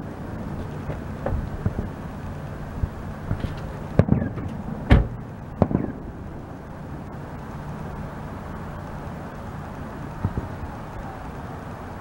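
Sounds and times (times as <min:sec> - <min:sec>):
low steady background noise: 0:00.0 - 0:12.0
fireworks shells bursting: 0:03.3 - 0:06.0.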